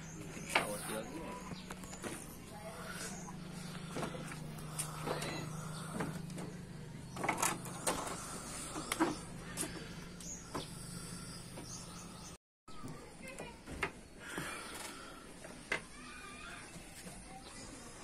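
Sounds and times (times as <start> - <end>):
low hum: 0.0 - 12.4.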